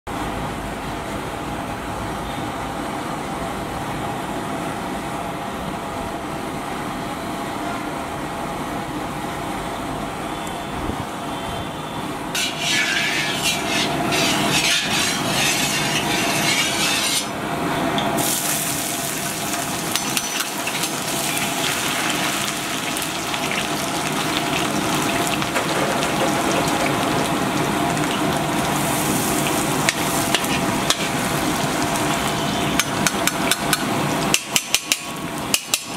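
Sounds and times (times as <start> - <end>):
garlic sizzling in hot oil: 12.4 - 17.4, 18.2 - 35.9.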